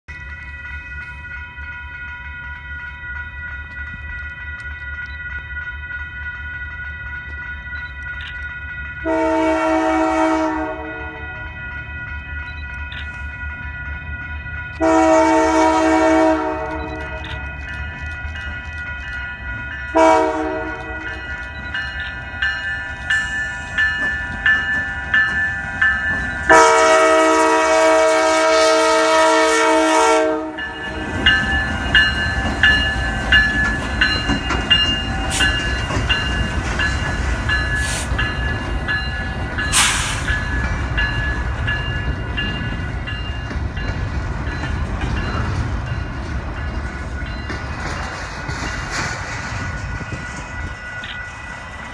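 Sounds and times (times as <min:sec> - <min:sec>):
crossing bell ringing: 0:00.1 - 0:51.9
train wheels clanking: 0:00.1 - 0:51.9
locomotive air horn blasts: 0:09.0 - 0:11.4, 0:14.8 - 0:17.3, 0:19.9 - 0:21.2, 0:26.5 - 0:30.9.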